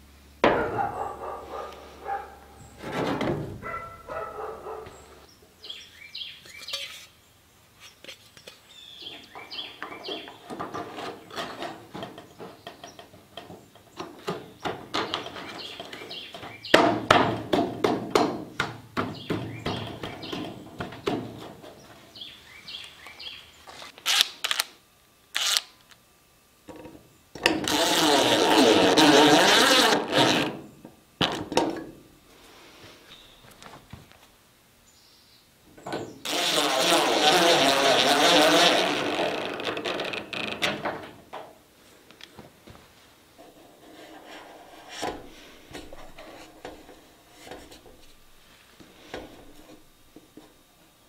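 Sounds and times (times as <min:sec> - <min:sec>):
knocking and clicking on gutters: 0:09.1 - 0:21.9.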